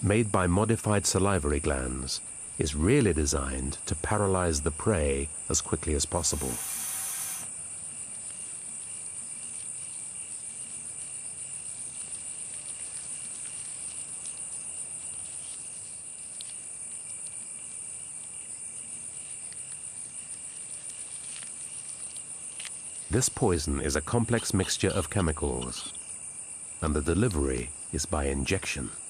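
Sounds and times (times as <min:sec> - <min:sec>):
crickets chirping: 0:00.0 - 0:29.0
fainter lower chirping: 0:06.2 - 0:07.6.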